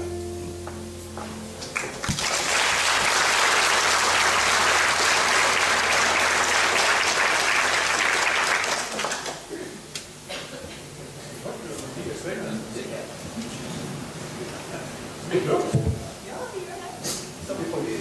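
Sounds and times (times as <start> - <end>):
audience applauding: 1.6 - 9.6.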